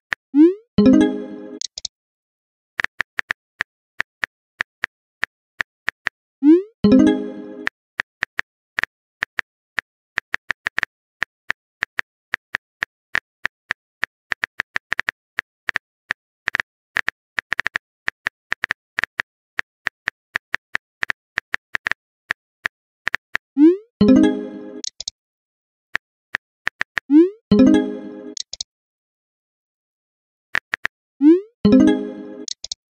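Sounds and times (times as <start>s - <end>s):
keyboard tapping clicks: 24.8s - 25.1s, 28.3s - 28.6s, 31.8s - 32.8s.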